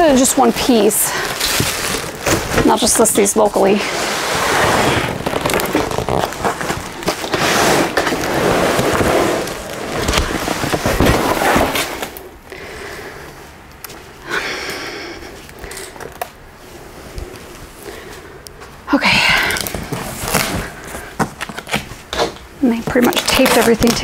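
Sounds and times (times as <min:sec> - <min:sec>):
cardboard box scraping and rustling: 0:00.2 - 0:12.2.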